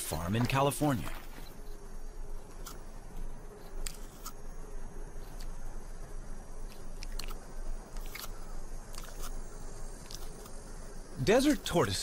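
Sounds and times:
tortoise chewing cactus crunches: 0:06.7 - 0:09.4.

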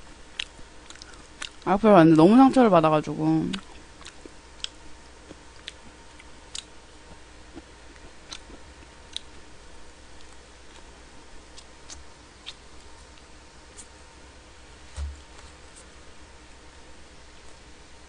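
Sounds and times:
soft chewing: 0:00.0 - 0:01.7, 0:03.5 - 0:14.0
faint steady hum: 0:00.0 - 0:18.0.

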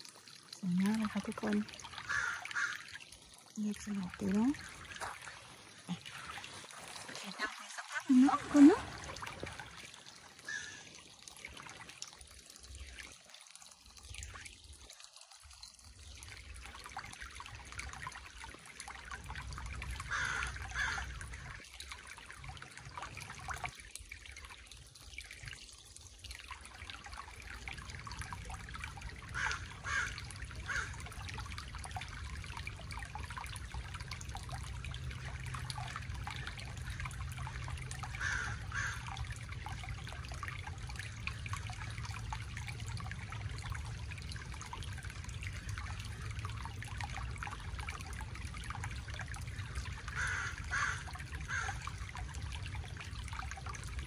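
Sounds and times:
creek trickling over stones: 0:00.0 - 0:54.0
bird calling: 0:10.4 - 0:11.0.

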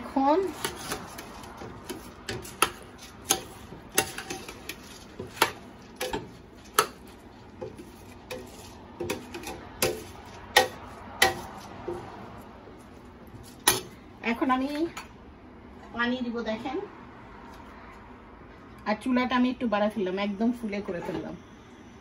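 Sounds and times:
metal spoon clinking on pot: 0:01.9 - 0:04.8.

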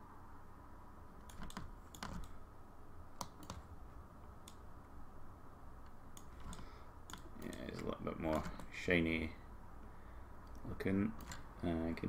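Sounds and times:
steady low hum: 0:00.0 - 0:12.0
computer keys clicking: 0:01.2 - 0:02.4, 0:03.2 - 0:03.7, 0:04.4 - 0:04.7, 0:05.8 - 0:08.7, 0:11.2 - 0:11.5.

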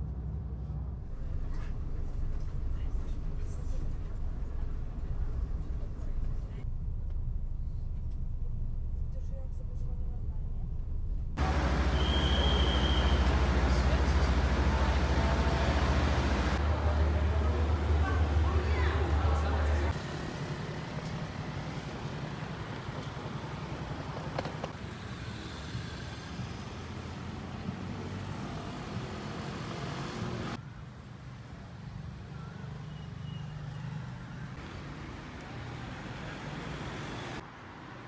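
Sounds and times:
scooters and cars passing: 0:11.4 - 0:30.6.

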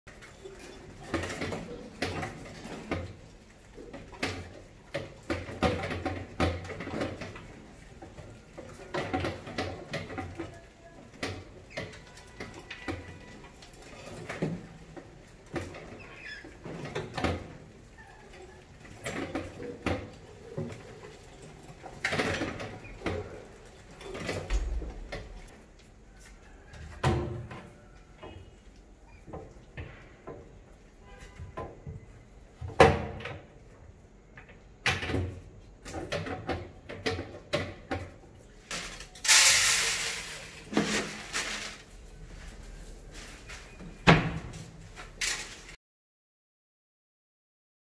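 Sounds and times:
mice scrambling on glass and metal: 0:00.1 - 0:24.6.

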